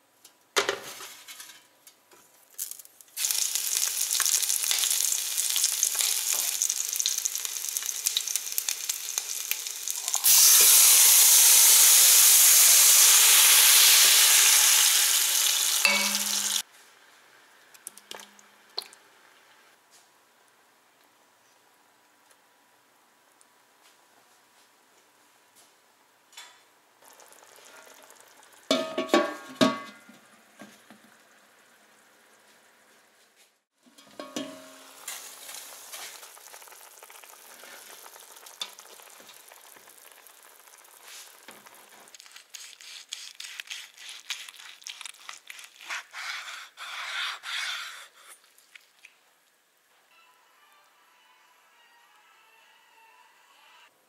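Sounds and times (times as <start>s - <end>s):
crackling fat spatter: 2.5s - 10.5s, 34.9s - 46.2s
roast sizzling in a pan: 2.5s - 16.7s, 27.0s - 29.7s, 33.8s - 46.7s
ringing metal clanks: 15.9s - 16.6s.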